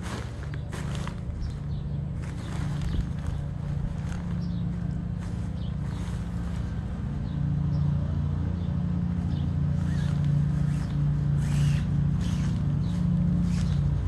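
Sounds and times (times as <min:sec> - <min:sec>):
low pulsing motor hum: 0:00.0 - 0:14.0
tent fabric rustling: 0:02.2 - 0:06.8, 0:09.7 - 0:14.0.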